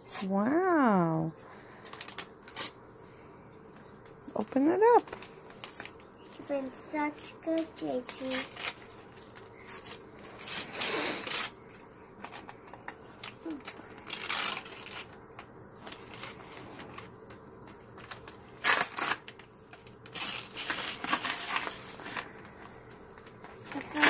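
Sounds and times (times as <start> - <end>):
paper rustling and crinkling: 1.4 - 24.0.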